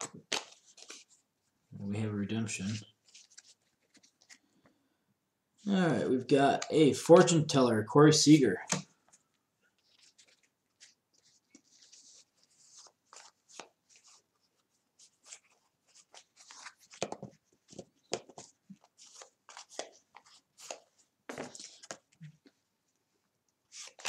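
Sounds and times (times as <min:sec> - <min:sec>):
cards flipped by hand: 0:00.0 - 0:01.2, 0:02.6 - 0:04.5, 0:08.6 - 0:14.2, 0:15.0 - 0:22.3, 0:23.7 - 0:24.0.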